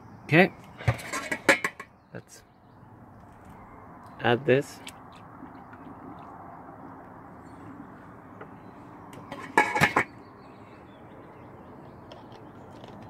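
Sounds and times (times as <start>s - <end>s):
metal kettle lid clattering: 0.8s - 1.8s, 9.3s - 10.1s.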